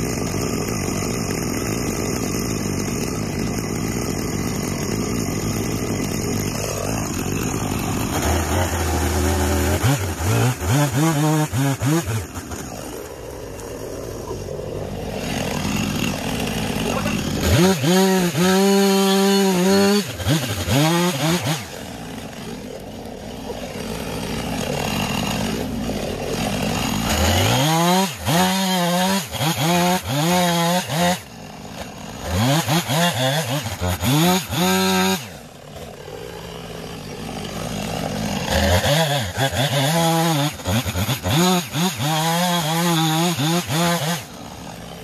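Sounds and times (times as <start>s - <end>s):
chainsaw cutting log: 0.0s - 45.0s.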